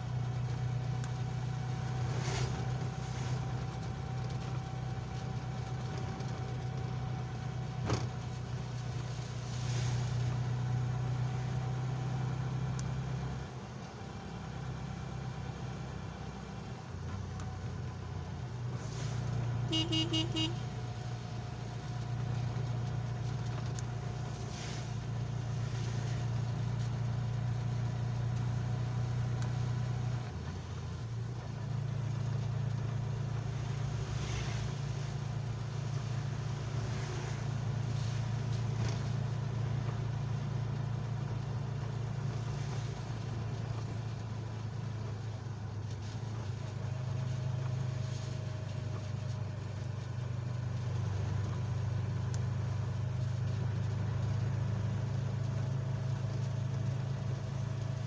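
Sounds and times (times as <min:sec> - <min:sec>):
vehicle engine droning: 0:00.0 - 0:58.0.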